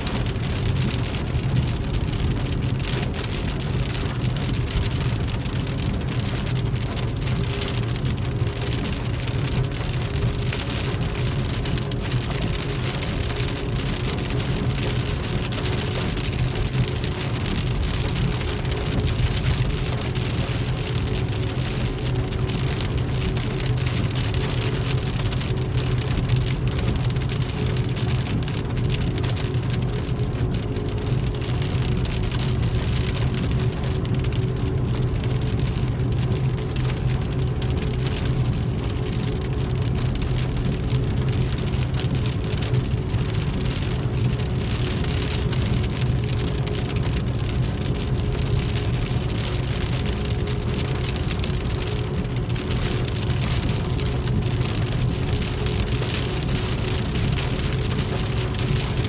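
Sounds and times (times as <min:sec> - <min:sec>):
rain pattering on car roof: 0:00.0 - 0:59.0.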